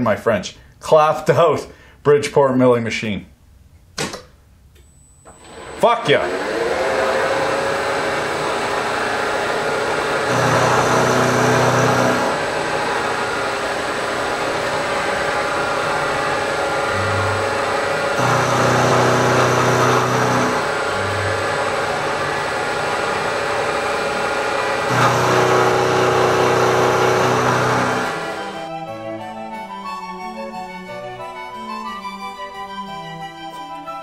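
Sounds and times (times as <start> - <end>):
milling machine cutting metal: 5.3 - 28.6
low hum: 9.6 - 28.8.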